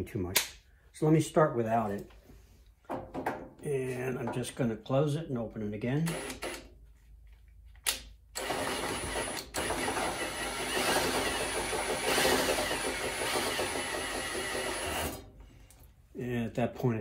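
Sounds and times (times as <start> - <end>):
cordless drill running: 6.1 - 6.7, 8.4 - 15.2.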